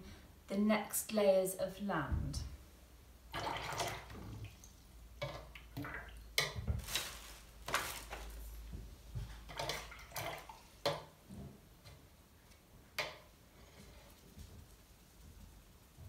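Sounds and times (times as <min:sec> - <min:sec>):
plastic rustling: 0:06.4 - 0:09.9.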